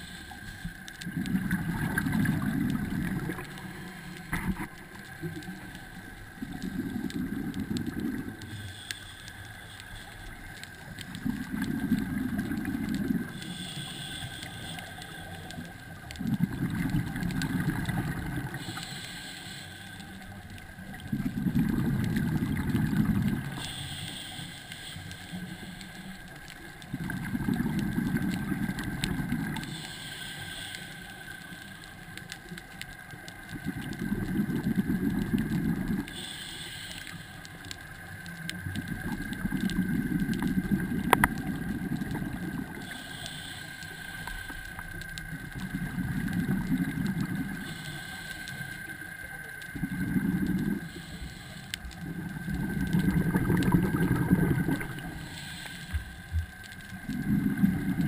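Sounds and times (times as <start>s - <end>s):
regulator inhalation hiss: 0.0s - 1.0s, 5.4s - 11.0s, 12.0s - 16.1s, 17.5s - 21.0s, 22.2s - 27.0s, 28.1s - 32.5s, 36.0s - 38.4s, 41.1s - 45.1s, 47.0s - 49.6s, 50.4s - 56.6s
faint steady whine: 0.0s - 58.0s
exhaled bubbles rumbling: 1.0s - 8.4s, 11.0s - 13.4s, 15.9s - 18.6s, 20.6s - 23.6s, 26.5s - 29.6s, 33.5s - 36.1s, 38.6s - 42.9s, 45.1s - 47.7s, 49.6s - 51.0s, 52.0s - 55.3s, 56.0s - 58.0s.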